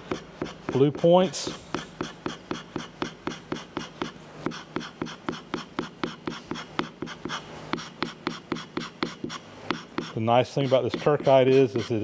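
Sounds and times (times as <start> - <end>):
hand scraper clicking and scratching: 8.0 - 12.0.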